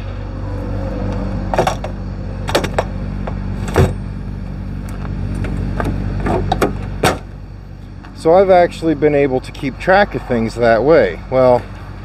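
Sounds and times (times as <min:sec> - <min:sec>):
truck diesel engine idling: 0:00.0 - 0:12.0
knocks and clatters of gear: 0:01.5 - 0:04.0, 0:04.8 - 0:07.3.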